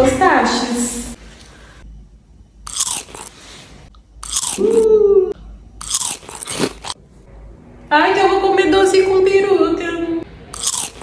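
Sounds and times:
crunching bites into sweet: 2.7s - 3.4s, 4.2s - 4.9s, 5.8s - 7.0s, 10.5s - 11.0s.

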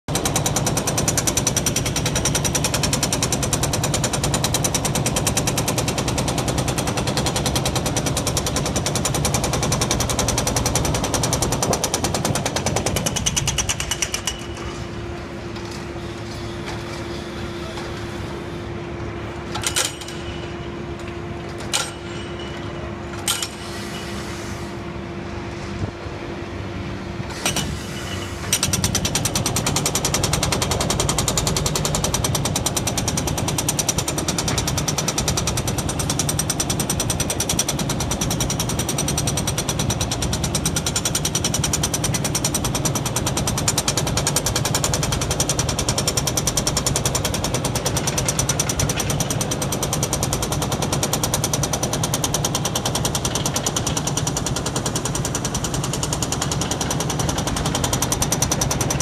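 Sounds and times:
hydraulic breaker hammering concrete: 0.1s - 15.0s, 19.5s - 23.8s, 27.3s - 59.0s
steady machine hum: 9.8s - 37.2s
sharp metal clanks: 21.6s - 24.2s.

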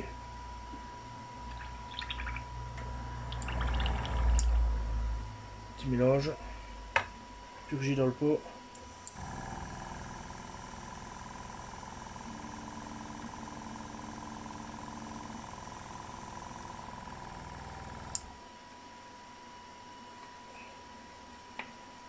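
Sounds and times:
compressor motor running: 8.8s - 18.4s.

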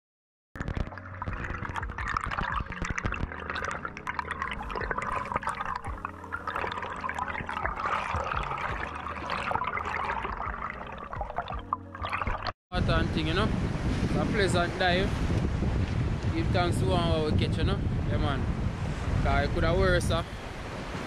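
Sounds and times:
crackling clicks: 0.6s - 7.5s
underwater bubbling: 0.6s - 12.6s.

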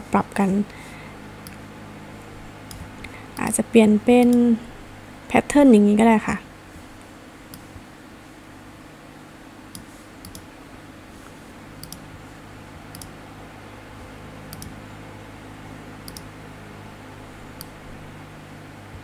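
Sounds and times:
steady low hum: 0.0s - 19.0s
computer mouse double clicks: 11.8s - 12.0s, 14.5s - 14.8s, 16.1s - 16.3s.

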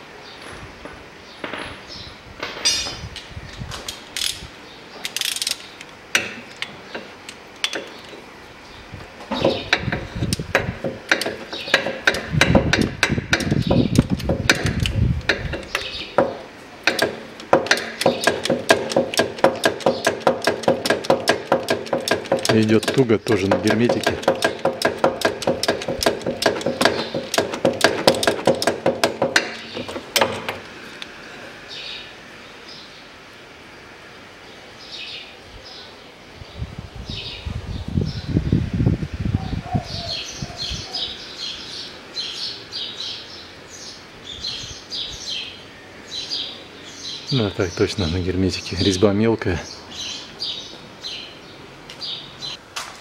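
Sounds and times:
ratchet wrench clicking: 5.0s - 5.6s, 9.7s - 15.9s, 16.9s - 30.3s.

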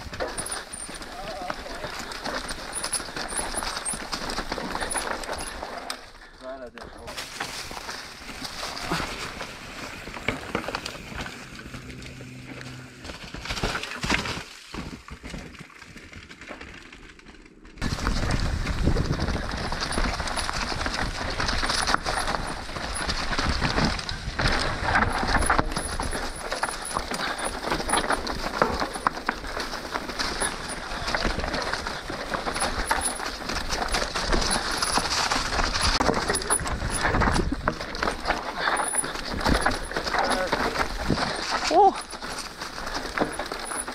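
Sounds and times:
bike rattling: 0.0s - 43.9s
bike tyres rolling on dirt: 0.0s - 43.9s
wind noise on microphone: 17.8s - 26.2s, 35.5s - 38.2s.

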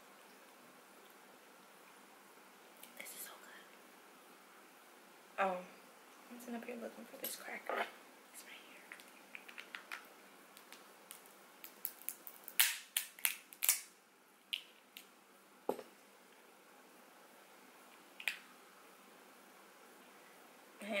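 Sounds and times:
crab shells cracking: 8.9s - 13.9s.

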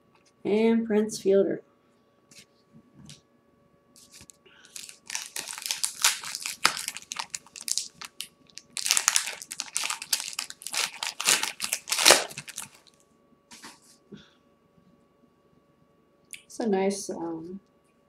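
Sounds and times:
plastic wrapper tearing and crinkling: 4.0s - 13.0s.

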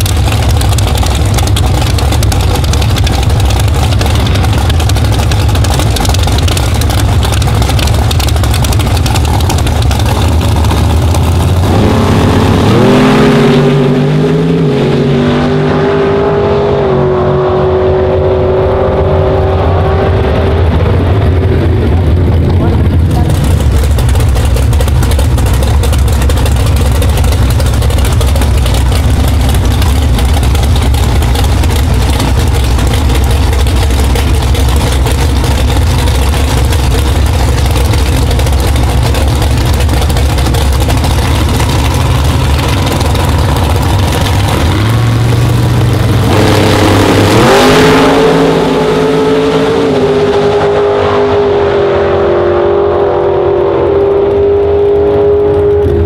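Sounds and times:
drag car engines rumbling: 0.0s - 56.0s
drag car launching at full throttle: 17.6s - 56.0s.

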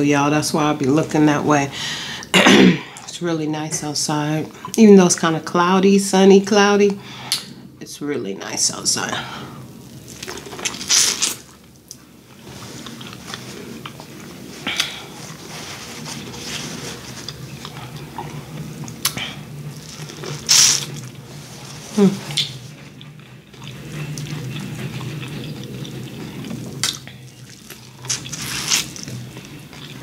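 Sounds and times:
wet chewing: 22.3s - 30.0s.

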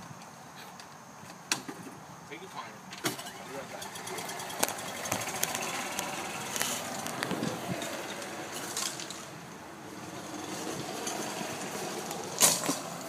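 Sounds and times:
golf cart running: 3.0s - 13.0s.

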